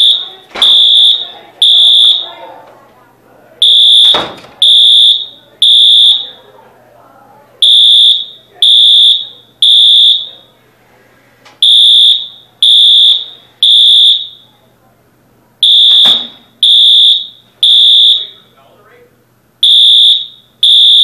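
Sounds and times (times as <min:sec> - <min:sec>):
fire alarm beeping: 0:00.0 - 0:02.4, 0:03.6 - 0:06.4, 0:07.6 - 0:10.5, 0:11.6 - 0:14.5, 0:15.6 - 0:18.4, 0:19.6 - 0:21.0.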